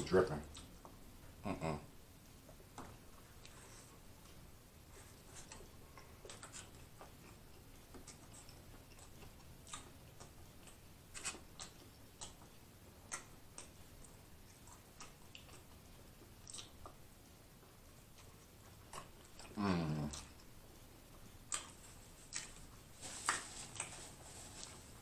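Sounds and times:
mouth chewing wet smacks: 0.4 - 1.0, 5.4 - 22.8.

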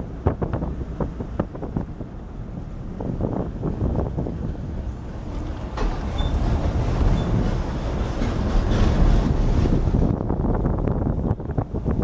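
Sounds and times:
vehicle engine and road noise: 0.0 - 12.0.

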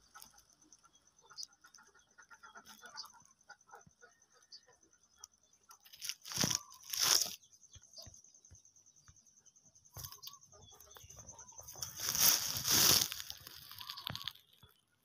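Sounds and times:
insect trilling: 0.0 - 15.0
crunching on dry leaves: 5.8 - 7.4, 11.6 - 14.8.

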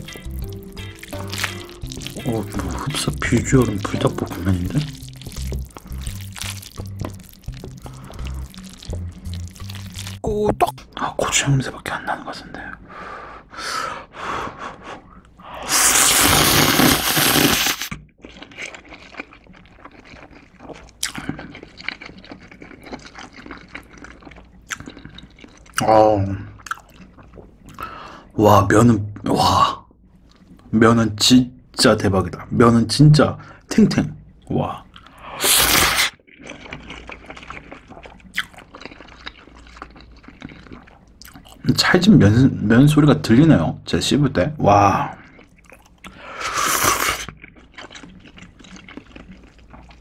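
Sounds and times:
chewing with soft smacks: 0.0 - 10.2, 18.2 - 25.9, 26.5 - 27.9, 30.0 - 30.7, 36.3 - 41.7, 45.1 - 46.3, 47.2 - 50.0
person slurping noodles: 0.0 - 10.2, 15.4 - 19.1, 35.2 - 36.2, 46.1 - 47.3.

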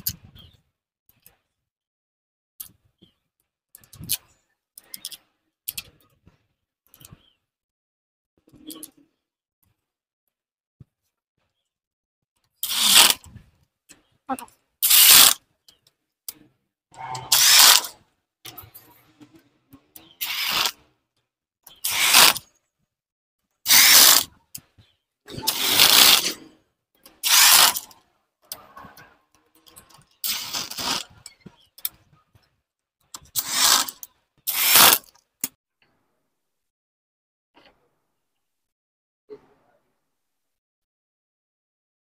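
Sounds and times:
ratchet wrench clicking: 27.2 - 27.8.

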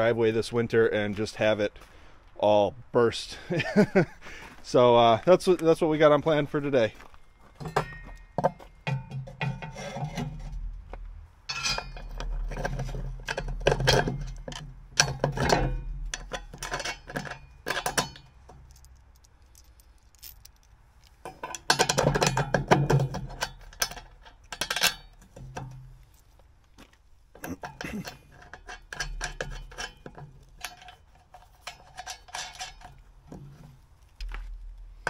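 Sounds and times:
bolts clinking against steel bracket: 6.8 - 10.7, 11.5 - 35.0.

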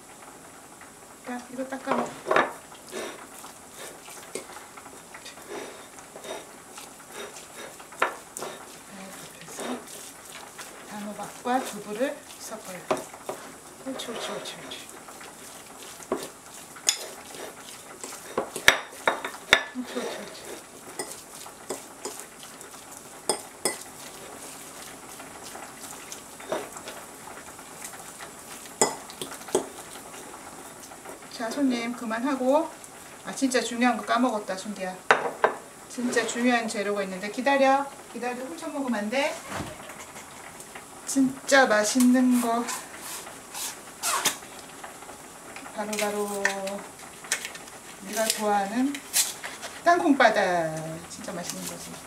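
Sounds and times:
spoon scraping ceramic bowl: 16.0 - 22.3, 23.3 - 24.2
metal fork scraping ceramic bowl: 16.1 - 17.2
spoon clinking against bowl: 23.3 - 23.8.

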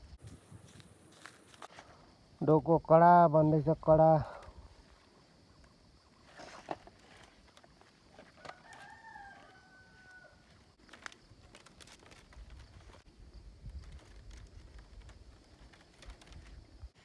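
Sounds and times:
bamboo strips clicking and rustling: 6.4 - 10.2, 10.8 - 17.0
faint rooster crowing: 8.3 - 10.7.

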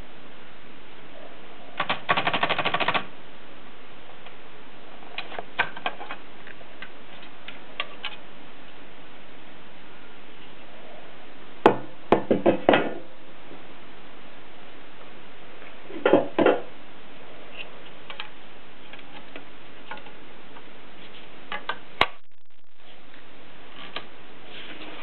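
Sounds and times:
typewriter typebar clacks: 1.8 - 3.1.

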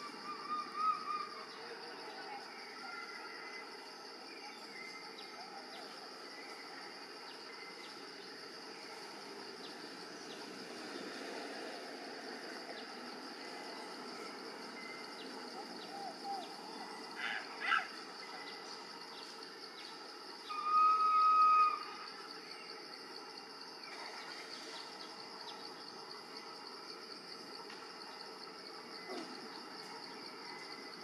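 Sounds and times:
high-pitched insect drone: 0.0 - 31.0
faint chirps and ticks: 12.4 - 20.4, 21.9 - 31.0.

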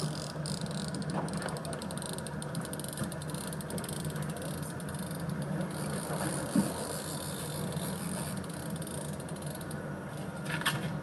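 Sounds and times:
boat engine humming: 0.0 - 10.5.

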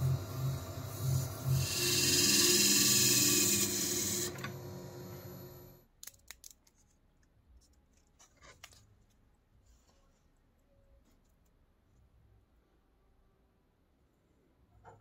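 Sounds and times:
lathe motor hum: 0.0 - 5.8.

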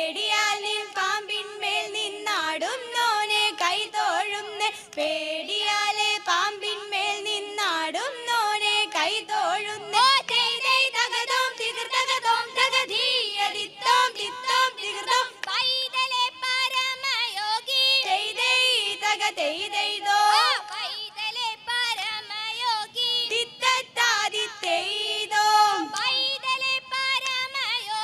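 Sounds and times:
women singing together: 0.0 - 28.0
hand claps: 15.4 - 15.7, 25.9 - 26.2, 27.2 - 27.6.

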